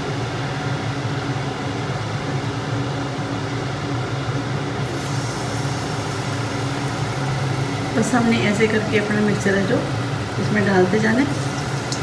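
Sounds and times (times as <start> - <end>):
low machine hum: 0.0 - 12.0
batter sizzling in hot oil: 4.7 - 12.0.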